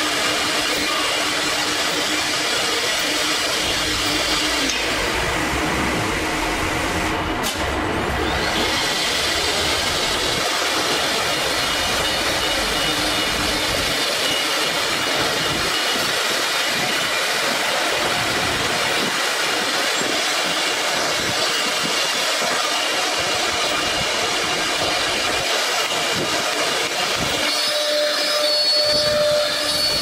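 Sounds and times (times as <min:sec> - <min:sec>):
wood router high whine: 0:00.0 - 0:30.0
router cutting into wood: 0:07.4 - 0:16.0.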